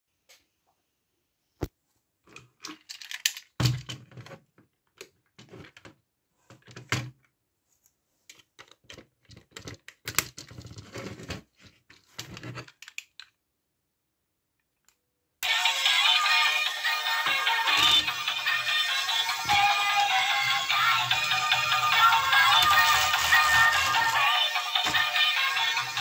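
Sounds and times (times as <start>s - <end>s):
plastic toy car rattling: 2.4s - 6.0s, 8.3s - 13.4s, 20.7s - 26.0s.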